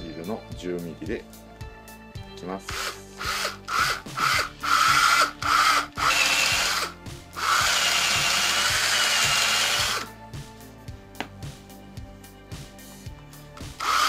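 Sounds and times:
power drill drilling into wood: 2.7s - 10.1s, 13.8s - 14.0s.

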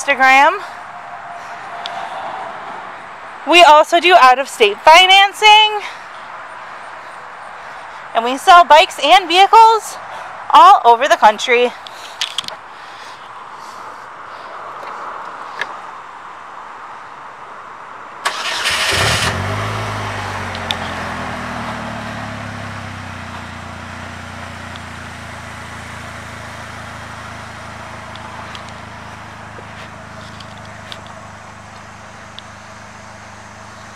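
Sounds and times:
engine starting and idling: 18.2s - 23.1s.

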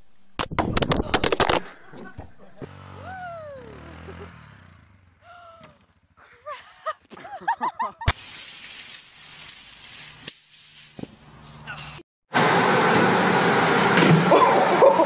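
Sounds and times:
quad bike engine running: 2.6s - 6.2s.

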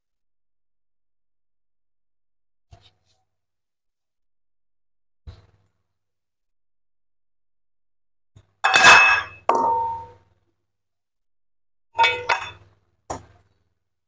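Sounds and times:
metal kitchenware clanging: 12.0s - 12.6s.

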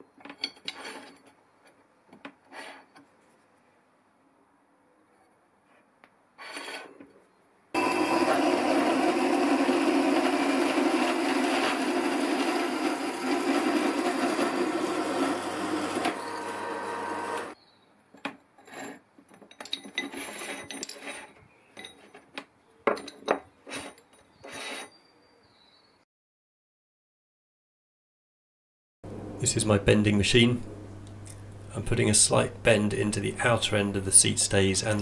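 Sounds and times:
bandsaw cutting metal tube: 7.8s - 17.6s
motor hum: 7.8s - 17.6s.

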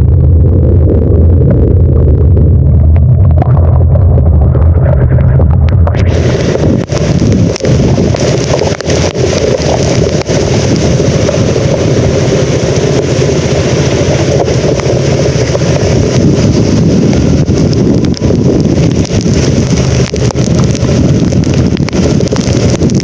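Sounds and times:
rain: 0.0s - 23.0s
wind buffeting microphone: 0.0s - 23.0s.

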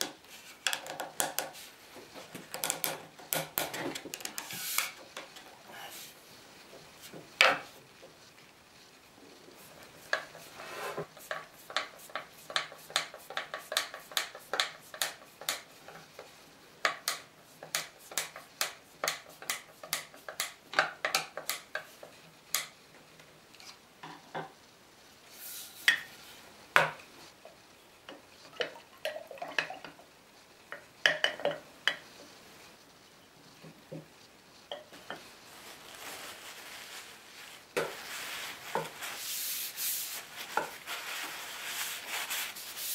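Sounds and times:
hand tool clicking on wood: 11.2s - 16.0s, 16.8s - 22.7s.

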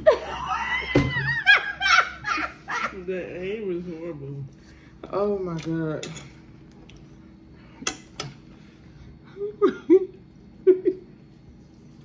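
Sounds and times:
woman laughing: 0.0s - 3.2s, 9.3s - 11.2s.

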